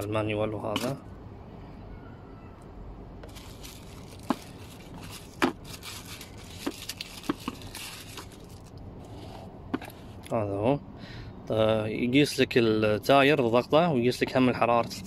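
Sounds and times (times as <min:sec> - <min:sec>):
tissue paper rustling: 0:03.2 - 0:08.7.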